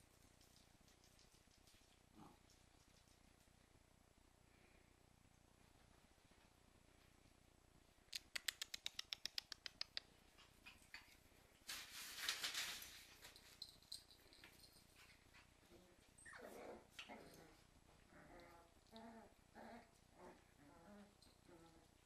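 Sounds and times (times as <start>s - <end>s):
claws clicking on tile floor: 8.1s - 11.1s
rustle: 10.2s - 22.0s
puppies whining and yipping: 16.1s - 17.6s.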